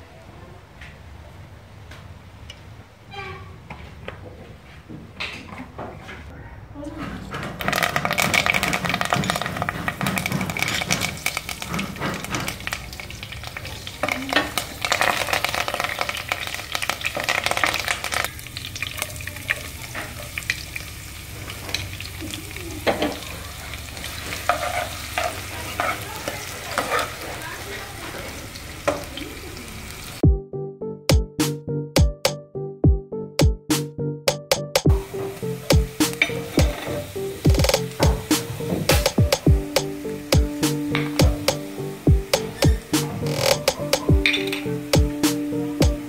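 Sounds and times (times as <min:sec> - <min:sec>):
wooden spatula scraping pot: 0:07.6 - 0:12.8, 0:24.1 - 0:27.4
leaves and onions sizzling in oil: 0:07.6 - 0:30.2, 0:35.0 - 0:38.8
electronic music with drum beat: 0:30.2 - 0:30.5, 0:31.1 - 0:46.0.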